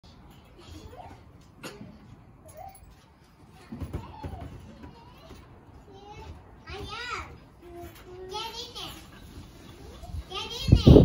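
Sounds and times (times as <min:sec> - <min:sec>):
child's high-pitched cry: 0:03.8 - 0:05.4.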